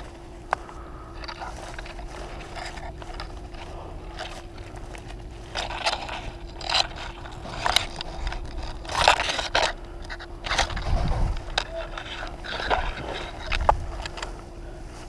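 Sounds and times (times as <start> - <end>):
faint hum: 0.0 - 15.0
scraping and crunching: 0.0 - 15.0.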